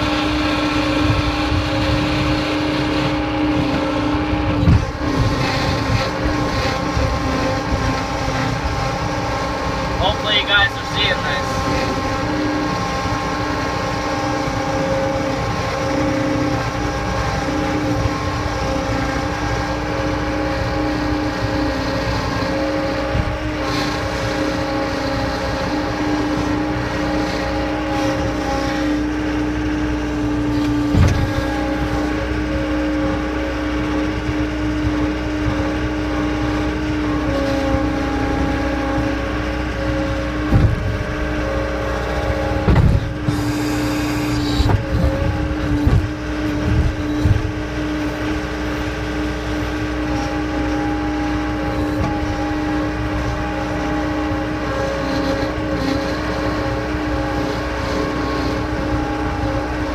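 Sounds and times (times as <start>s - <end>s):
diesel engine humming: 0.0s - 59.9s
machine knocks: 40.5s - 41.2s, 42.6s - 43.4s.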